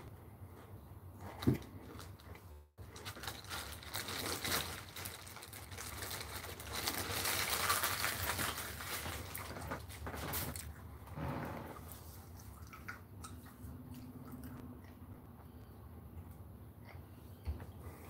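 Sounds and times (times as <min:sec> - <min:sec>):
plastic bag crinkling: 0:01.8 - 0:10.7.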